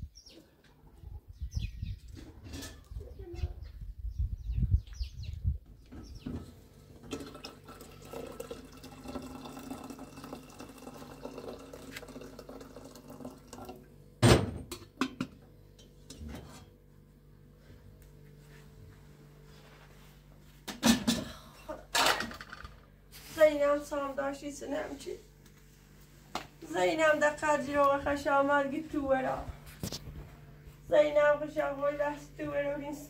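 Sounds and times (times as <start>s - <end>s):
water pouring into metal kettle: 7.0s - 13.8s.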